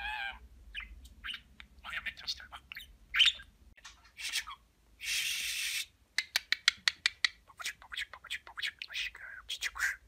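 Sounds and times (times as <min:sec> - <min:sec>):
budgerigar chirp: 0:00.0 - 0:03.5
budgerigar raspy hiss: 0:05.0 - 0:05.9.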